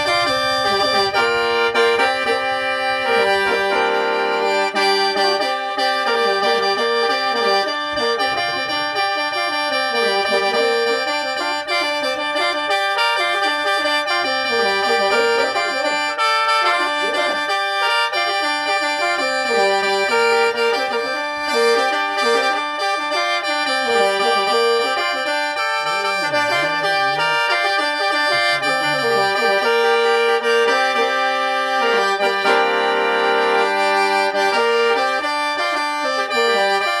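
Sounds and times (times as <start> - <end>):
mouth organ melody with drones: 0.0 - 37.0.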